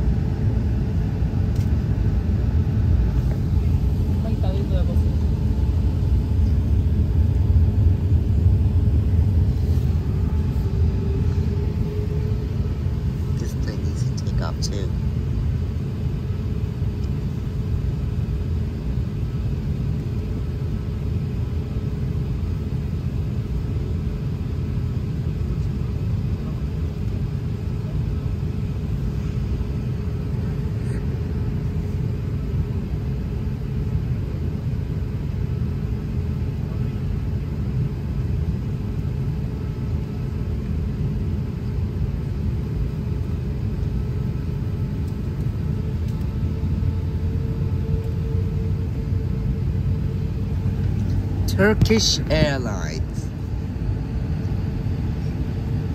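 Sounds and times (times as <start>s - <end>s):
cabin hum: 0.0s - 24.3s, 42.2s - 55.9s
jet engine low rumble: 0.0s - 55.9s.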